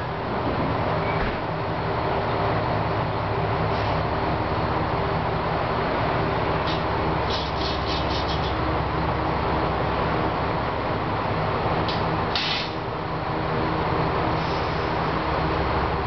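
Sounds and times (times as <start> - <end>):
diesel railcar engines idling: 0.0 - 16.0
loud hiss: 12.4 - 12.8
short hisses: 12.4 - 12.8.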